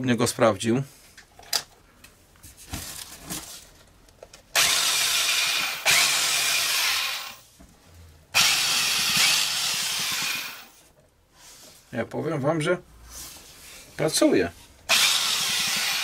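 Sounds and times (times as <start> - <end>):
rotary hammer motor running: 4.6 - 7.4, 8.4 - 10.7, 14.9 - 16.0.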